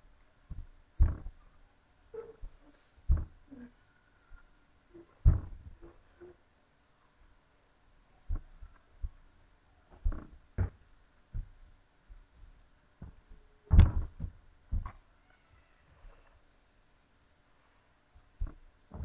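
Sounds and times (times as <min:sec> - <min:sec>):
feet thudding on wooden floor: 0:00.5 - 0:01.4, 0:02.2 - 0:03.5, 0:05.2 - 0:06.0, 0:10.0 - 0:15.0.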